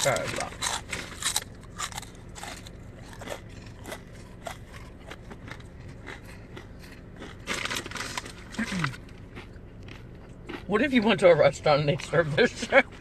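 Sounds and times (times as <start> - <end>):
crinkly snack bag: 0.0 - 9.2
crunching crackers: 0.0 - 13.0.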